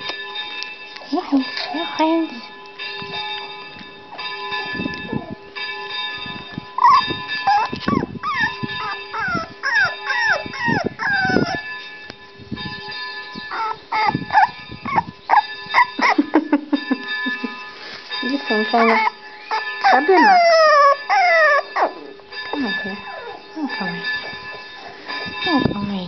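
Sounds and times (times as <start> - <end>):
puppy whining and yelping: 6.8 - 11.7, 13.4 - 16.4, 18.7 - 23.5.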